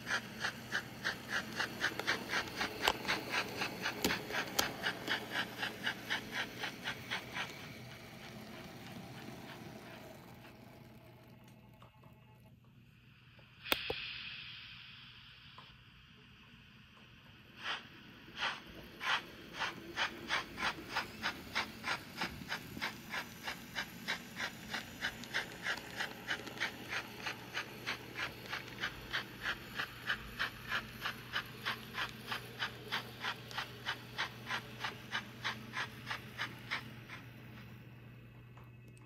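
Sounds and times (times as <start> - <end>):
steam locomotive chuffs: 0.0 - 11.8, 16.3 - 38.1
faint steady hum: 0.0 - 39.0
short hiss: 13.6 - 16.0.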